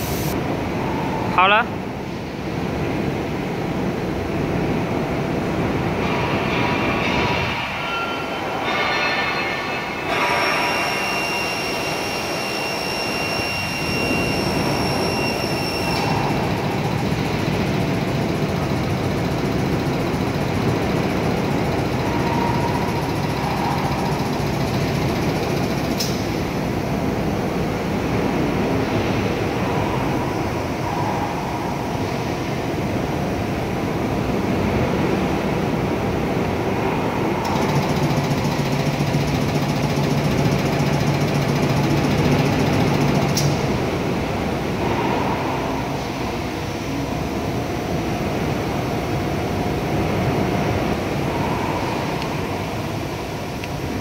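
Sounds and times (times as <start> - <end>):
pumps droning: 10.2 - 26.8.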